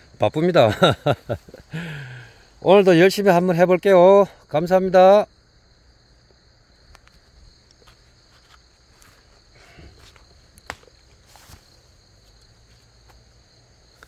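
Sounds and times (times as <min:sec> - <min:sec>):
insects chirring: 0:00.0 - 0:14.0
soft rustles: 0:07.1 - 0:13.2.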